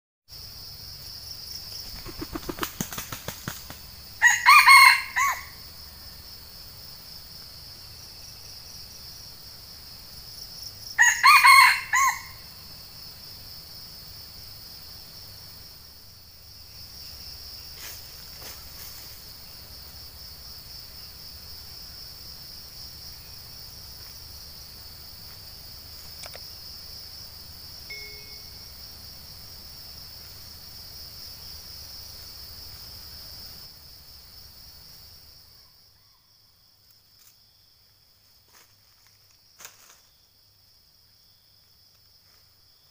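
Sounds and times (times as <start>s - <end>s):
high insect drone: 0.3s - 42.9s
wings flapping: 1.8s - 3.9s
rooster crowing: 4.2s - 5.6s, 11.0s - 12.4s.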